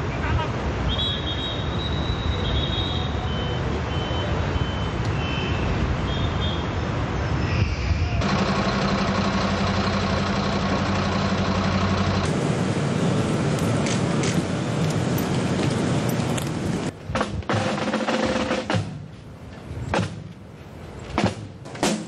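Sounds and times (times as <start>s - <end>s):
vehicle engine running: 8.2s - 16.9s.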